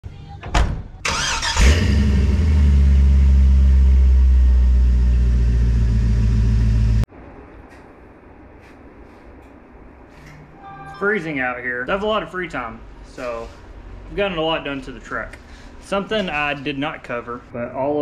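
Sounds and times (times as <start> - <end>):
pickup engine starting and idling: 1.0 - 7.0.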